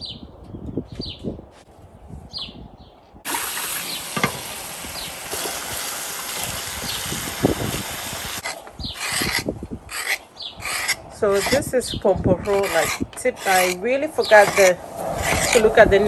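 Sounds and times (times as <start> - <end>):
small birds chirping: 0.0 - 1.4, 4.9 - 5.2, 6.8 - 7.6, 8.5 - 15.9
faucet water running: 3.3 - 8.4.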